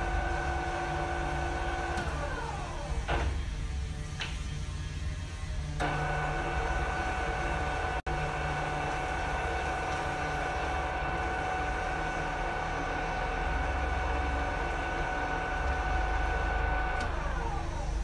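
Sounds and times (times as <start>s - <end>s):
pillar drill whining: 5.7s - 18.0s.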